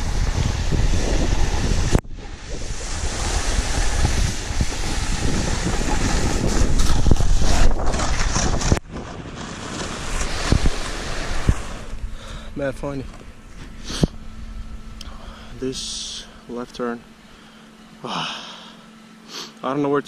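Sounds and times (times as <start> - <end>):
wind rushing over microphone: 0.0 - 13.1
snowboard scraping on snow: 0.0 - 14.1.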